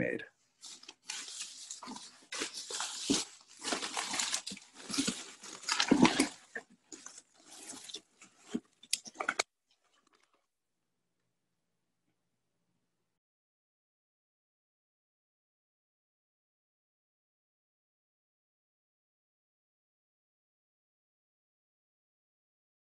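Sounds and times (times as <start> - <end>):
paper scraps rustling: 0.6 - 9.4.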